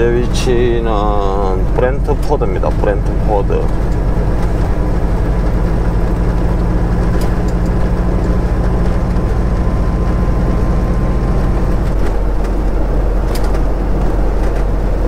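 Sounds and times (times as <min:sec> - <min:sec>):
road noise: 0:00.0 - 0:15.0
truck diesel engine drone: 0:00.0 - 0:15.0.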